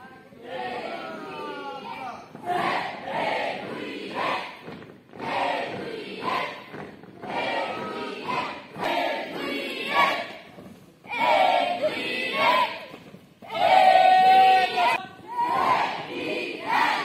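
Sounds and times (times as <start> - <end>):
group singing in unison: 2.4 - 10.5, 11.1 - 12.9, 13.5 - 17.0.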